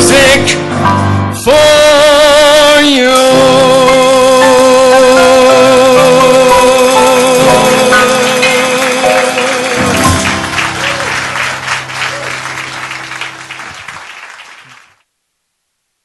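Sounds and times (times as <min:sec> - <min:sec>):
band's final chord: 0:06.0 - 0:13.8
audience applause: 0:06.8 - 0:15.0.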